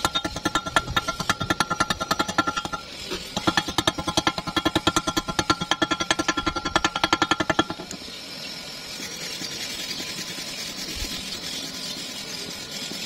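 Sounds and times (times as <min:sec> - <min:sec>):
chipping hammer tapping metal: 0:00.0 - 0:08.0
wire brush scrubbing weld: 0:00.0 - 0:13.0.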